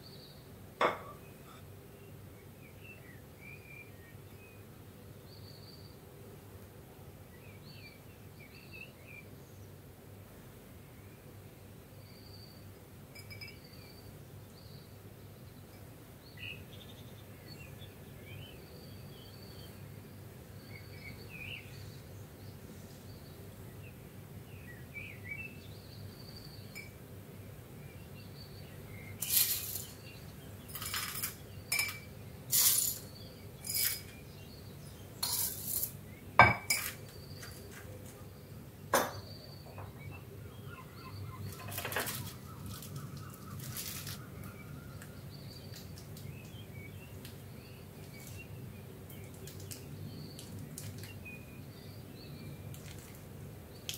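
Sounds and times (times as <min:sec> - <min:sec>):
faint bird chirps: 0:12.0 - 0:19.8, 0:36.4 - 0:48.6
spoon clinking against glass: 0:13.2 - 0:13.7, 0:30.8 - 0:32.1, 0:36.4 - 0:37.0.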